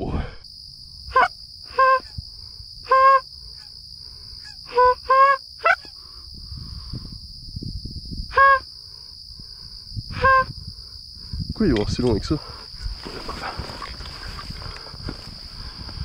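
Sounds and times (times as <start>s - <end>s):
high-pitched insect trill: 0.4s - 16.0s
geese honking: 1.1s - 2.1s, 2.9s - 3.2s, 4.7s - 5.9s.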